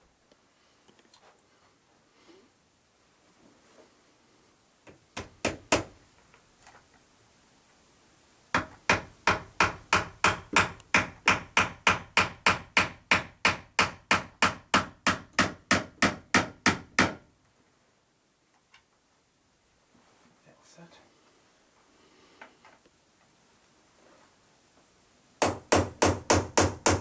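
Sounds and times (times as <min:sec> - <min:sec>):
hammer striking nails into wood: 0:04.9 - 0:06.0, 0:08.5 - 0:17.2, 0:25.4 - 0:27.0.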